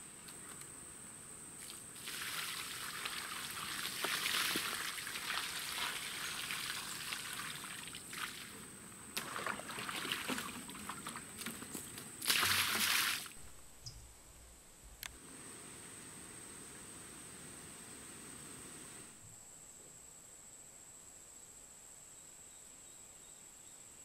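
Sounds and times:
liquid pouring onto ground: 0:01.6 - 0:08.5, 0:09.2 - 0:13.3.

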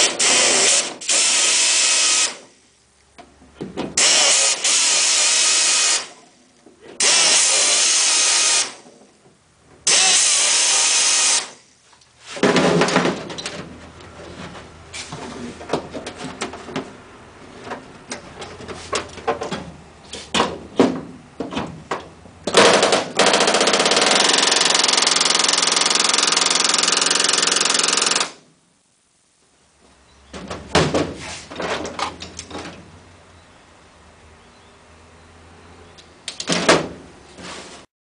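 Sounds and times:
pneumatic air tool running: 0:00.0 - 0:02.5, 0:04.0 - 0:06.2, 0:07.0 - 0:08.8, 0:09.9 - 0:11.6, 0:22.6 - 0:28.4.

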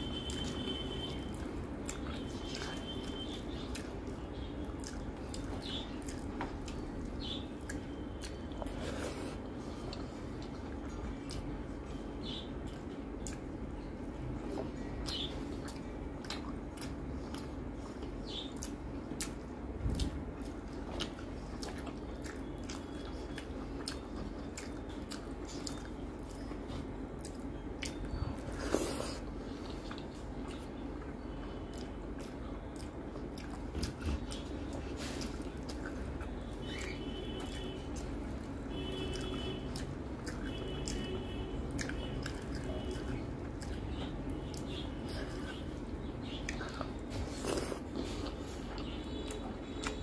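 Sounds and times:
person chewing: 0:00.1 - 0:13.7, 0:14.4 - 0:50.0.

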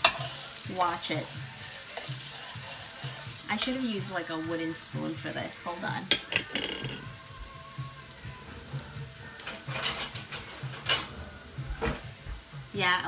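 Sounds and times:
kitchen utensils clattering: 0:00.0 - 0:01.2, 0:03.5 - 0:04.3, 0:06.0 - 0:07.1, 0:09.4 - 0:12.2
food frying in a pot: 0:00.0 - 0:13.0.

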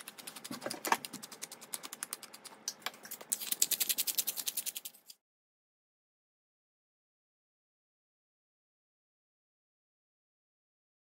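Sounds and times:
pepper mill grinding: 0:00.0 - 0:05.2.

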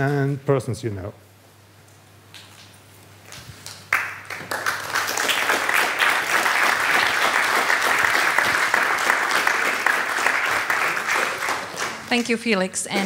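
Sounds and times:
audience applauding: 0:03.7 - 0:12.3.

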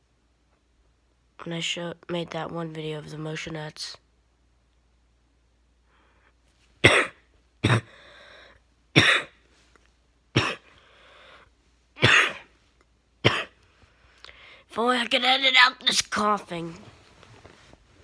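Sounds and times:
man coughing: 0:06.8 - 0:08.0, 0:09.0 - 0:09.4, 0:10.4 - 0:10.7, 0:12.0 - 0:12.5, 0:13.2 - 0:13.6.

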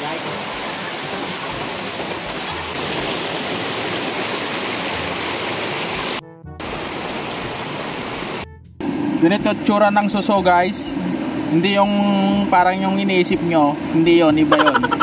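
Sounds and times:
stream rushing over boulders: 0:00.0 - 0:08.4.

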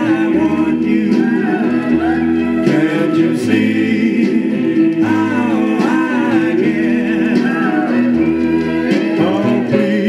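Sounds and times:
vocal group singing over band: 0:00.0 - 0:10.0.

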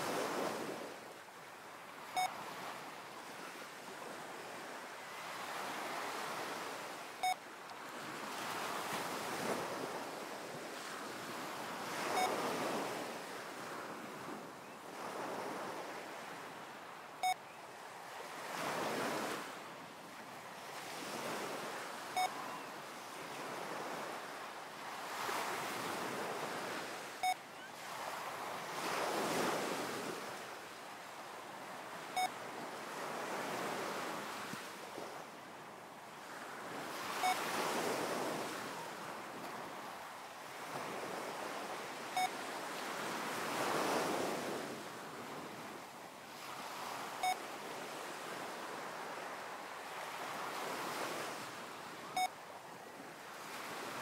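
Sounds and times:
ocean waves washing: 0:00.0 - 0:54.0
short electronic beep: 0:22.2 - 0:22.6.

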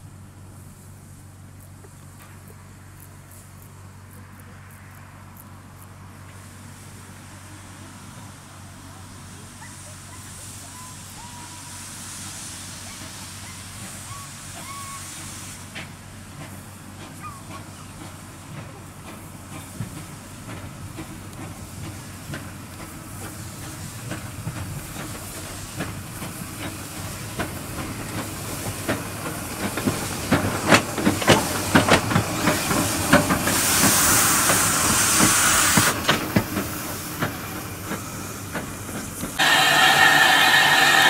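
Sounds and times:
steam locomotive passing: 0:00.0 - 0:41.0
loud steam hiss: 0:06.4 - 0:17.2, 0:19.2 - 0:41.0.

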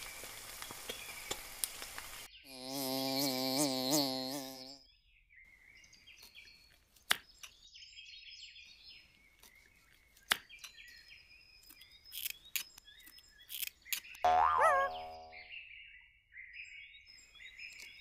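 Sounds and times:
faint bird chirping: 0:02.2 - 0:18.0.

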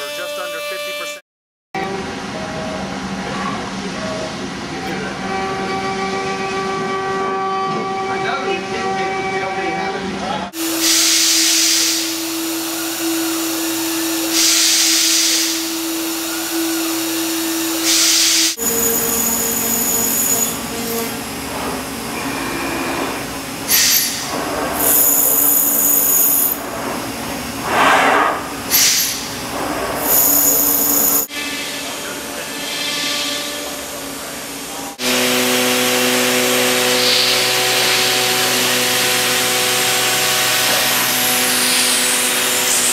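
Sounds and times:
router spindle whine: 0:35.0 - 0:42.9.

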